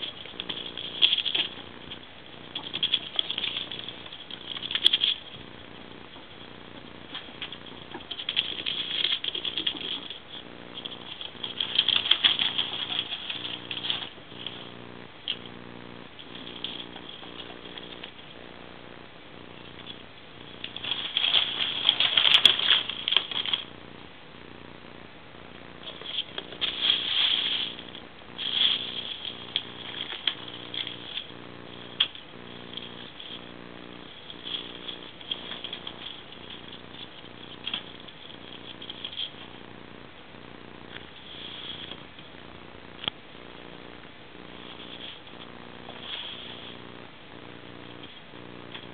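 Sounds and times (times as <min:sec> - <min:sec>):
steady low hum: 0:00.0 - 0:48.9
claws pattering on wooden floor: 0:19.7 - 0:23.8, 0:25.8 - 0:39.5
plastic bag and foil crinkling: 0:19.7 - 0:23.8, 0:25.8 - 0:39.5
foil mat rustling: 0:25.8 - 0:33.6.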